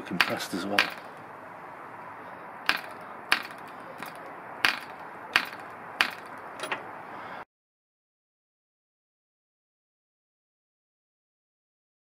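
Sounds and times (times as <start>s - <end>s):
propeller flicked by hand clicks: 2.7s - 6.9s.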